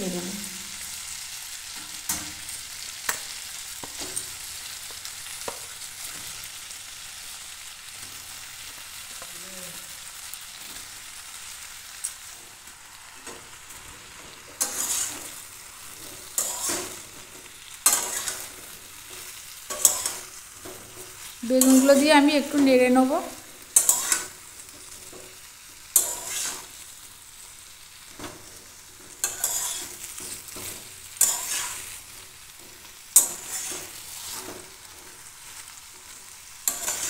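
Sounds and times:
vegetables sizzling in oil: 0.0 - 37.0
metal spatula scraping pan: 14.1 - 17.2, 17.8 - 22.2, 23.8 - 24.4, 26.0 - 26.8, 28.8 - 32.0, 33.2 - 34.8, 36.6 - 37.0.

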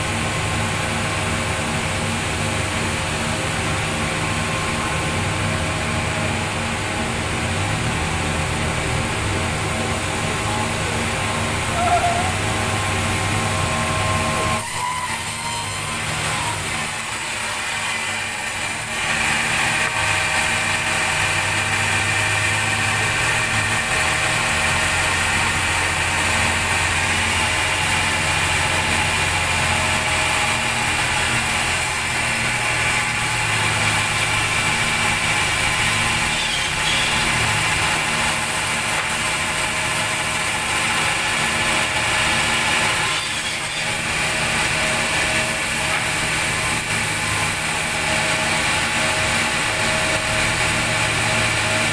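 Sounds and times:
sawmill machinery humming and whining: 0.0 - 51.9.

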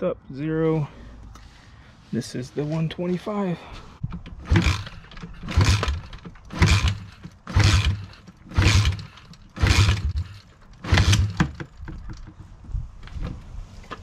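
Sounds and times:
kickstarter cranking engine: 4.1 - 12.4.

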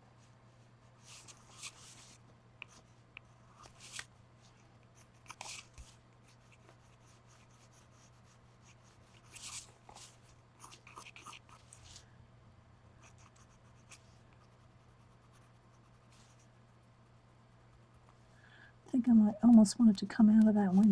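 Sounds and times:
paper handling: 3.6 - 4.1
pencil scratching on paper: 5.0 - 11.8, 13.0 - 16.4.

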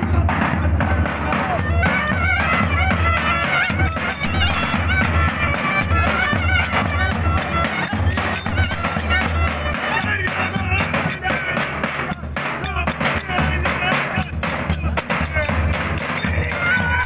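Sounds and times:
bass drum beat: 0.0 - 17.0
clarinets playing folk melody: 1.0 - 11.6.

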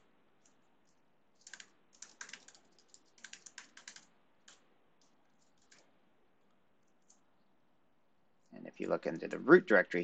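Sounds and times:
typing on computer keyboard: 0.4 - 5.9, 6.9 - 7.2.

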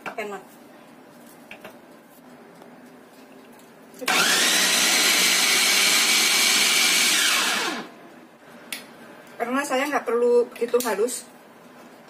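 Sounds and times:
food chopper motor whirring: 4.1 - 7.9.

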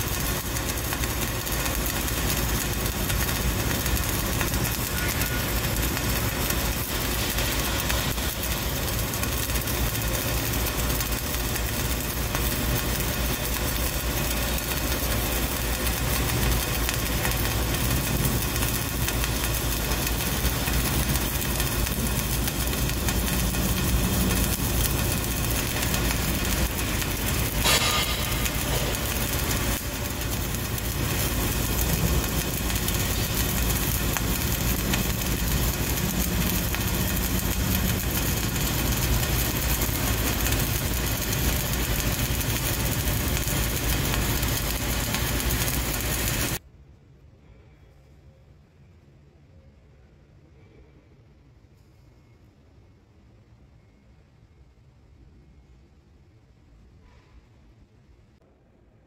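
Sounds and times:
welding arc crackling and sizzling: 0.0 - 46.6.

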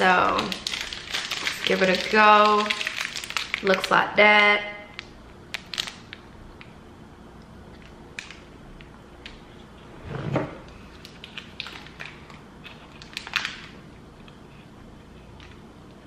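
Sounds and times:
plastic wrapper crinkling: 0.0 - 6.7, 10.7 - 14.4.

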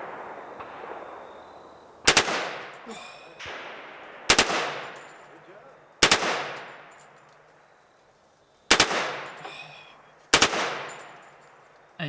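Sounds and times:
automatic gunfire bursts with echo: 2.0 - 2.7, 3.4 - 5.0, 6.0 - 6.9, 8.7 - 9.4, 10.3 - 11.0.

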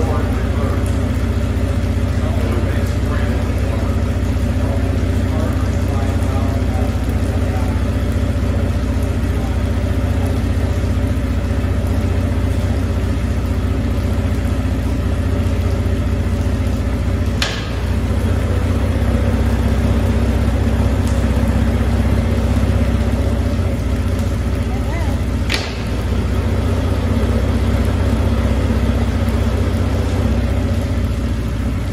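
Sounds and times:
outboard motors idling: 0.0 - 31.9.

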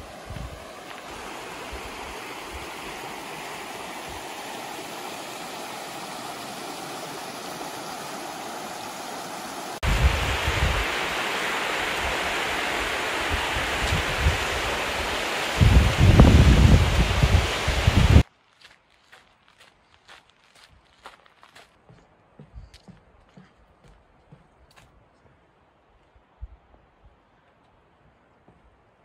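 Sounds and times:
wind buffeting microphone: 0.0 - 3.0, 9.8 - 11.0, 13.3 - 18.2
river rushing over stones: 0.0 - 18.2.

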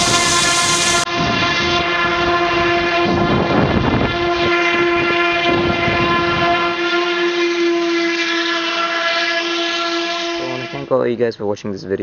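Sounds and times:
rushing air: 0.0 - 1.6
propeller motor droning: 0.0 - 10.9.

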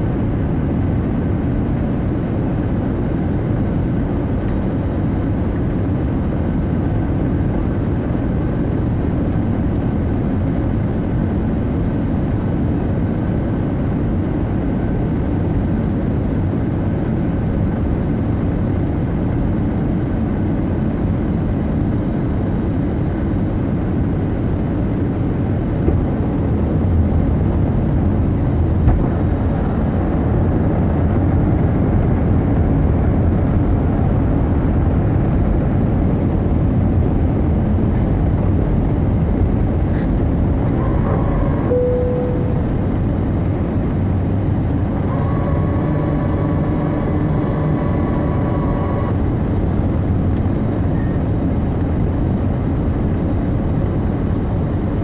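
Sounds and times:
airplane cabin rumble: 0.0 - 55.0
faint steady whine: 37.4 - 55.0.

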